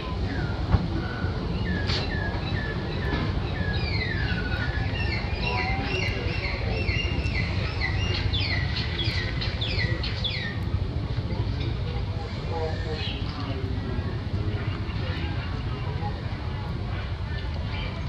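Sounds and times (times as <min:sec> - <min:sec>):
birds chirping: 0:00.0 - 0:11.7
steady low rumble: 0:00.0 - 0:18.0.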